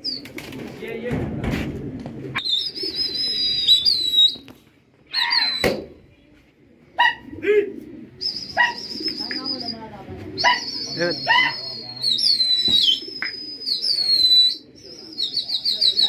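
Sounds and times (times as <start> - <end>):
high wavering whistles: 2.4 - 4.5, 8.2 - 16.0
sharp bird calls: 8.2 - 9.8, 10.4 - 16.0.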